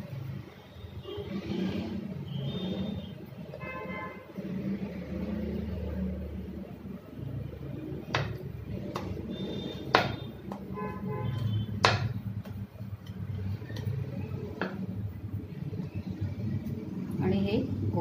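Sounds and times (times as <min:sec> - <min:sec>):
rolling pin knocking on steel: 0:11.8 - 0:12.2.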